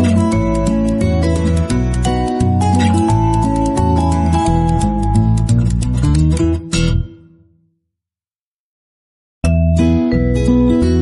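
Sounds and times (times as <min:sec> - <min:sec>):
music with deep bass line: 0:00.0 - 0:07.1.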